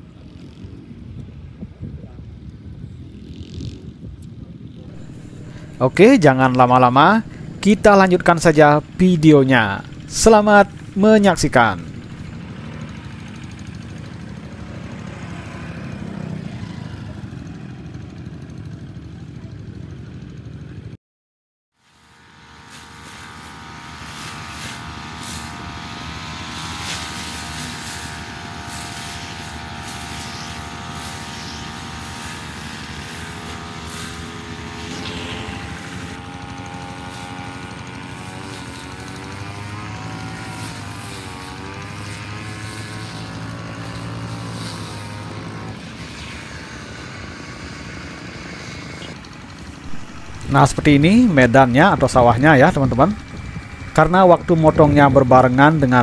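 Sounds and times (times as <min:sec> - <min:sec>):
brush cutter cutting grass: 0:00.1 - 0:00.9, 0:03.0 - 0:20.9, 0:21.8 - 0:56.0.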